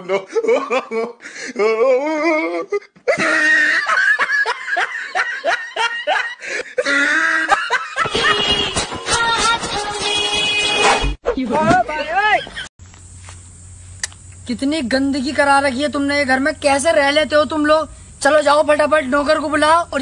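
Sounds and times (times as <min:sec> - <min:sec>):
person laughing loudly: 0:00.0 - 0:08.8
music: 0:08.1 - 0:11.2.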